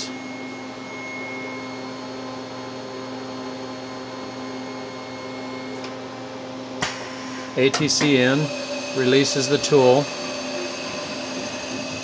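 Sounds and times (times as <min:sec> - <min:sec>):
mill machine humming: 0:00.0 - 0:12.0.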